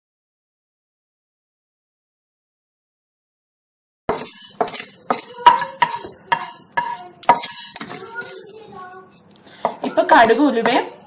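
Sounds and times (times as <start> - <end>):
spatula scraping seeds in pan: 4.1 - 11.0.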